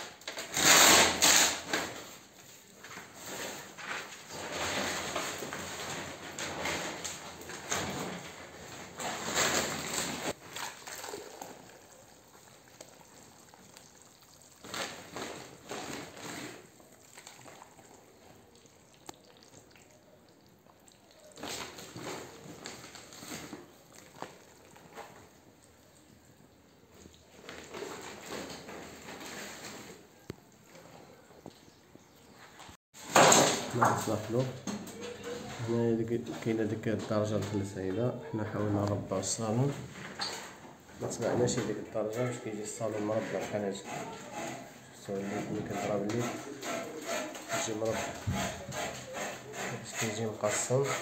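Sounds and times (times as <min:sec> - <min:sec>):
plaster sloshing in bucket: 0:02.6 - 0:20.1.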